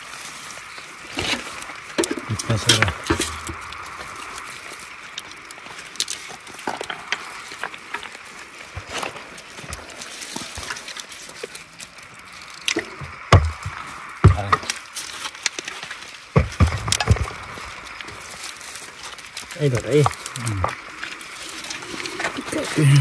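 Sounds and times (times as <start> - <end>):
river water rushing: 0.0 - 23.0
knocks and splashes: 2.0 - 3.9, 12.8 - 14.8, 16.3 - 18.4.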